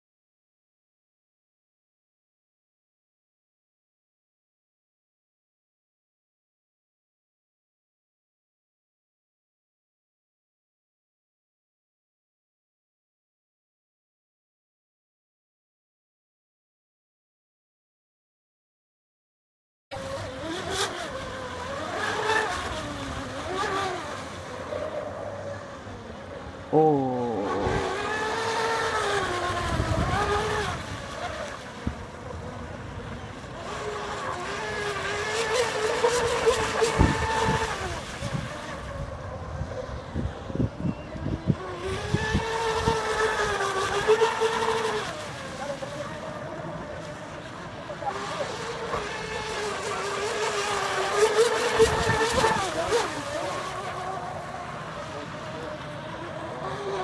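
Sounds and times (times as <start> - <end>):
electric motor whining: 20.0 - 26.0, 26.7 - 39.2, 47.9 - 57.0.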